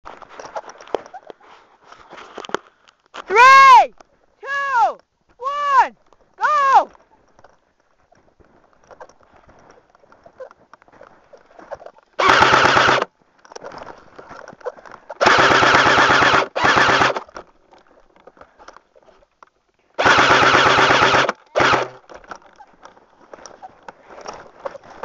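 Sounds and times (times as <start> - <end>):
airsoft gun automatic bursts: 12.2 - 13.1, 15.2 - 17.4, 20.0 - 22.0.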